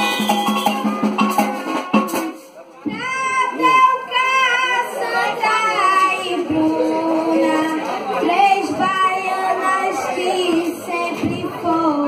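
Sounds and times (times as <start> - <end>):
boy singing into microphone: 2.9 - 12.0.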